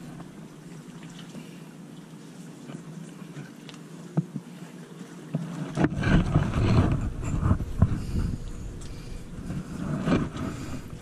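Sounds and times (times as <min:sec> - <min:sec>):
wind buffeting microphone: 0:05.9 - 0:11.0.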